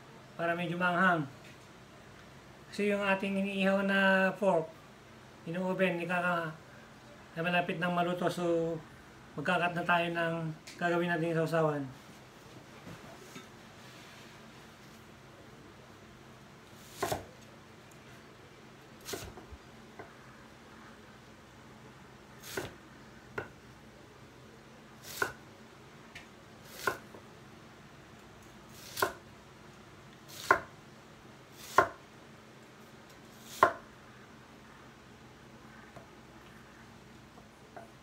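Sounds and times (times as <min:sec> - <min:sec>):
cleaver chopping on wooden board: 0:16.9 - 0:17.3, 0:25.1 - 0:25.4, 0:26.8 - 0:27.1, 0:28.9 - 0:29.2, 0:30.4 - 0:30.7, 0:31.7 - 0:32.0, 0:33.6 - 0:33.8.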